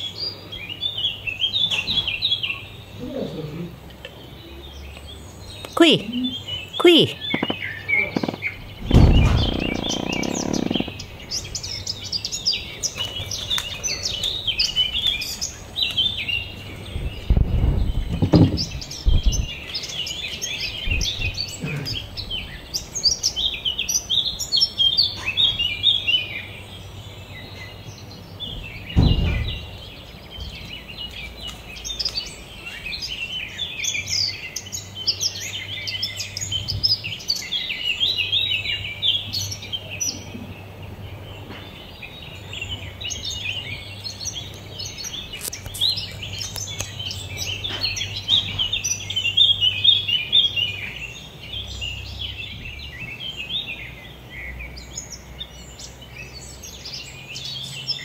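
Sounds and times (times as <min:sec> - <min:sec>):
small birds chirping: 0:00.0 - 0:58.0
dull low thuds: 0:07.4 - 0:11.5.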